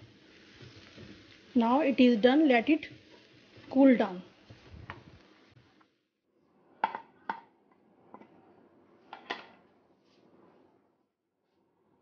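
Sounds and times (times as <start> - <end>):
faint hiss: 0.0 - 5.9
kitchenware knocks and clinks: 6.8 - 7.5, 9.1 - 9.6.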